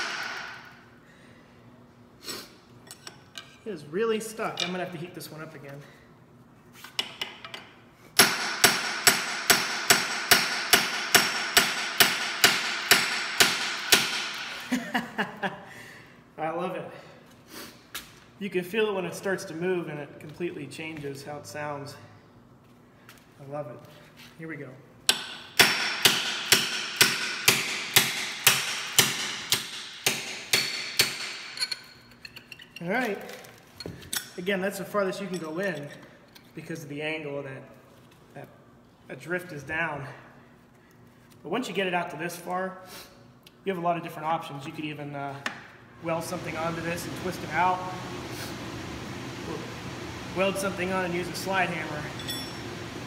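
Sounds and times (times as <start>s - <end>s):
hammer striking metal punch: 0.0s - 0.7s, 8.2s - 14.5s, 25.1s - 31.6s.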